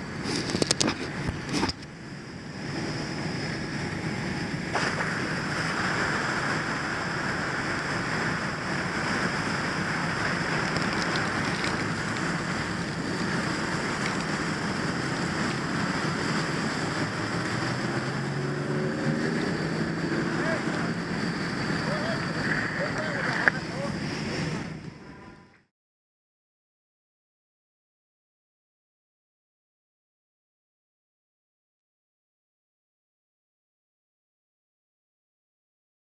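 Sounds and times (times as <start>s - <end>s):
fire hose spraying: 0.0s - 24.9s.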